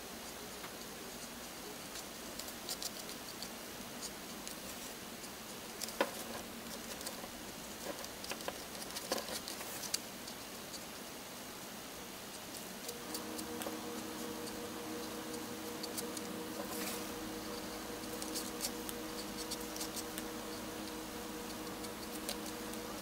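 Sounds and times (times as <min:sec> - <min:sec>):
steady hiss: 0:00.0 - 0:23.0
marker scratching on paper: 0:12.8 - 0:23.0.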